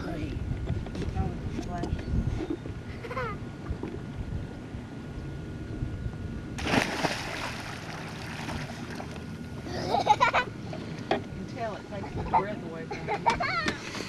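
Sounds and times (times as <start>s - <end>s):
loud splash into water: 6.6s - 9.1s.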